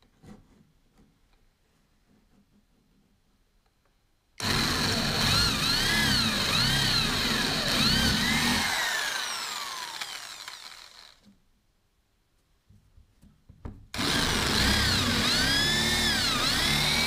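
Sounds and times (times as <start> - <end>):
electric drill whining: 4.4 - 11.3, 14.0 - 17.0.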